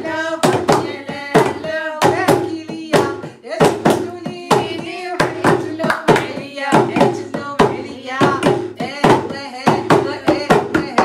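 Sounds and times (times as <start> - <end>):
people singing: 0.0 - 11.0
hand clapping: 5.2 - 7.2.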